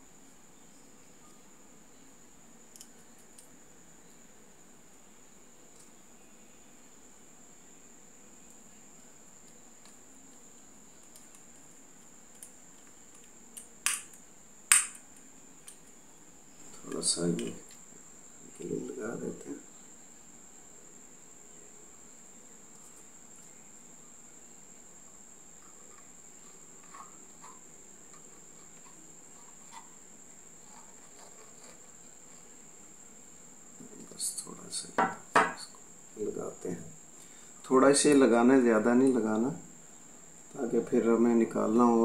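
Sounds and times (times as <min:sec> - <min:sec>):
sharp metallic click: 0:13.6 - 0:15.0.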